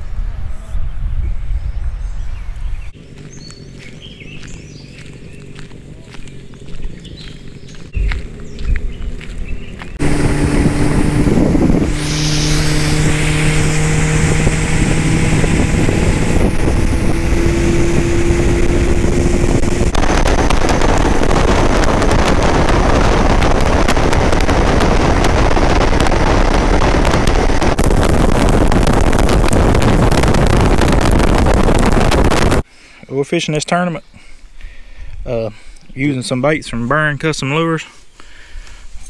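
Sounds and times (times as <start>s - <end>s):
rush of wind: 0.0s - 32.7s
churning wake water: 10.0s - 32.6s
outboard motor humming: 10.0s - 32.6s.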